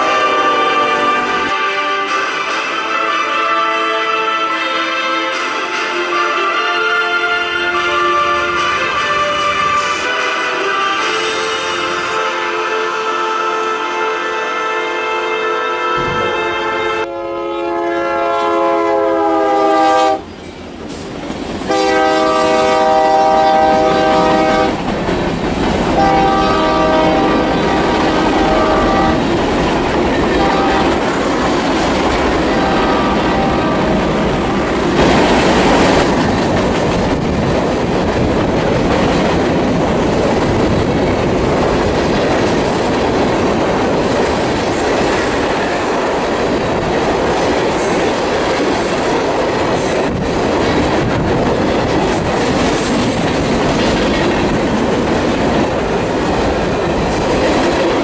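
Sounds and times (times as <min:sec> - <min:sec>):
distant locomotive air horn: 0:00.0 - 0:20.3, 0:21.7 - 0:24.8, 0:25.9 - 0:29.3, 0:30.2 - 0:31.2, 0:32.0 - 0:34.7
train wheels clattering on rails: 0:20.0 - 0:58.0.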